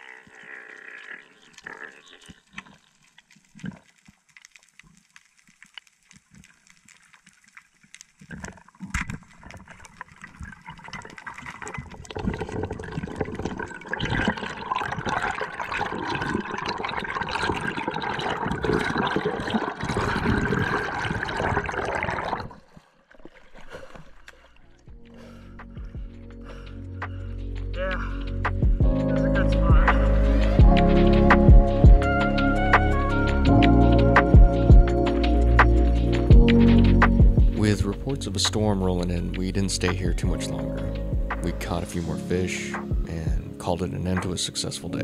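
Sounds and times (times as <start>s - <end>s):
bubbling rushing water: 0.0s - 25.0s
underwater clicks and crackles: 0.0s - 26.4s, 33.6s - 45.0s.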